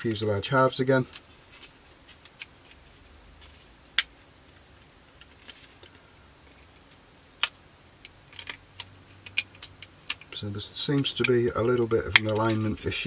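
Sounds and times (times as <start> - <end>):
plastic parts clicking together: 1.0 - 2.8, 5.2 - 11.4, 12.0 - 12.8.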